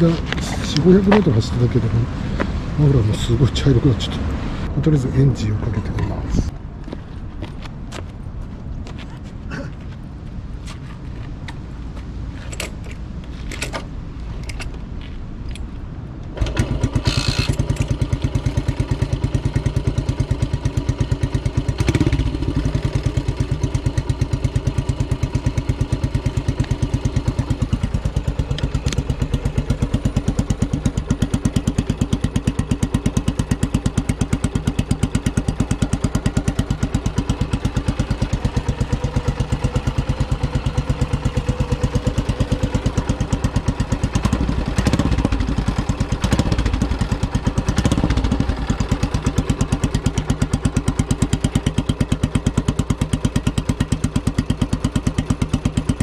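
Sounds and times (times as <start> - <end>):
motorcycle engine idling: 16.4 - 56.0.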